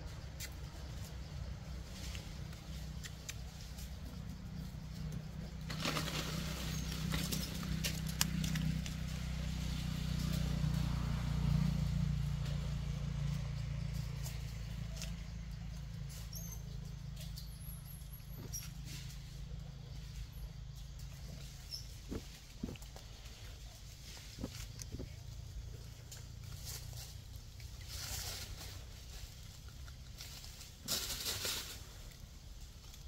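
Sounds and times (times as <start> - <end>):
steady low rumble: 0.0 - 33.0
dry leaves crackling and rustling: 1.7 - 15.2, 21.3 - 33.0.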